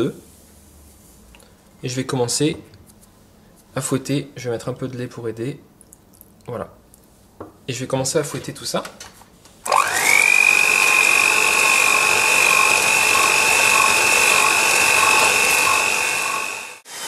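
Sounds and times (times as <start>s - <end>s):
electric hand mixer whining: 9.6s - 17.0s.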